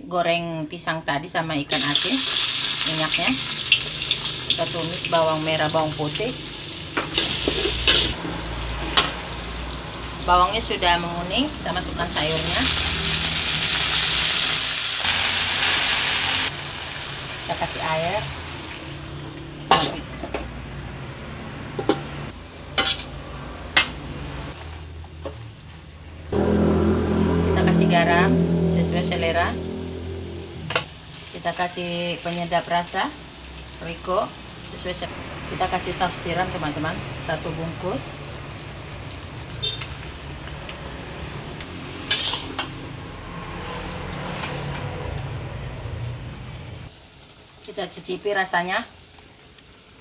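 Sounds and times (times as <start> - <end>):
food frying: 1.7 - 20.2, 30.6 - 43.0, 46.3 - 50.0
low sizzle: 1.7 - 21.2, 21.8 - 50.0
metal spatula scraping a wok: 7.1 - 9.2, 22.7 - 23.3, 42.0 - 42.8.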